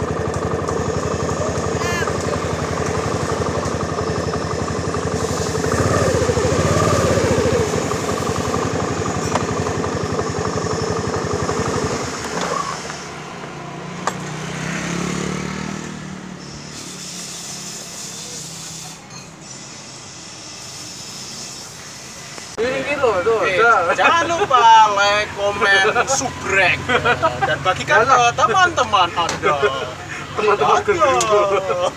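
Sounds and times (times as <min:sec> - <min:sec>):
motorcycle engine idling: 0:00.0 - 0:16.8
street noise: 0:00.0 - 0:31.9.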